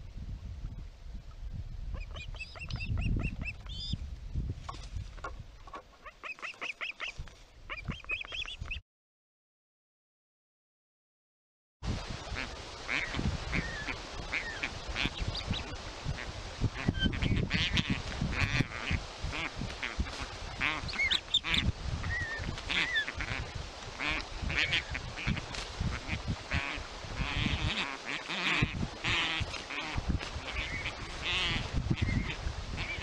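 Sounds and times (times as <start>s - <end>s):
osprey chicks chirping: 1.9s - 4.0s, 5.7s - 8.8s, 12.9s - 15.7s, 20.0s - 23.4s.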